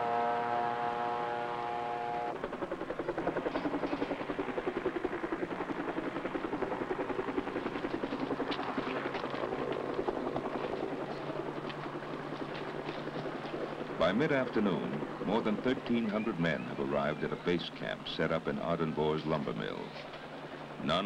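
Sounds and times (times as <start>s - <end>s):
helicopter rotor beating: 2.3s - 21.0s.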